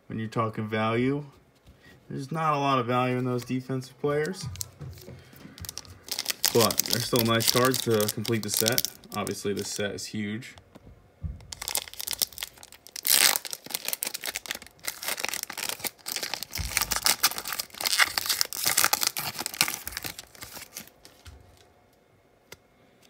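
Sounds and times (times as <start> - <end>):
wrapper tearing and crinkling: 5.6 - 9.8, 11.5 - 21.2.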